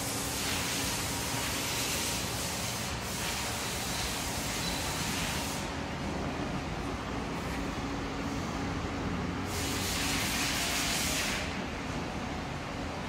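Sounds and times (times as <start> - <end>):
coolant spraying hiss: 0.0 - 5.8, 9.5 - 11.6.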